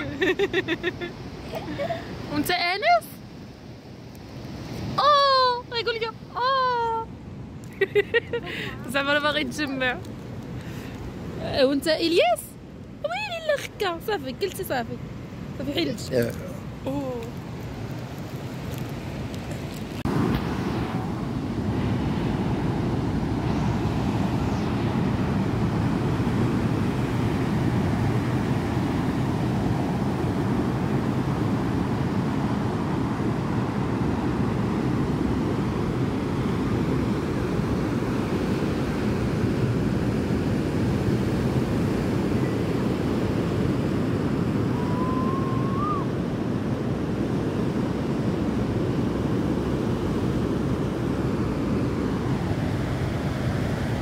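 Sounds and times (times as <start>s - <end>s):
wind rumbling on microphone: 16.4s - 54.0s
ocean surf breaking: 17.4s - 54.0s
short rising whistle: 44.7s - 46.2s.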